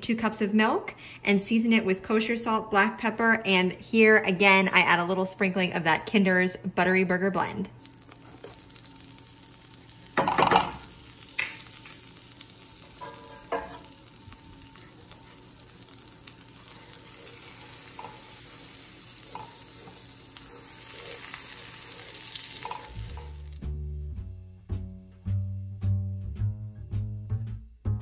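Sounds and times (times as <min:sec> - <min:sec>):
butter and flour sizzling: 0:07.8 - 0:23.8
spatula knocking on skillet: 0:10.2 - 0:11.7, 0:12.9 - 0:14.0
music with bass line: 0:23.0 - 0:28.0.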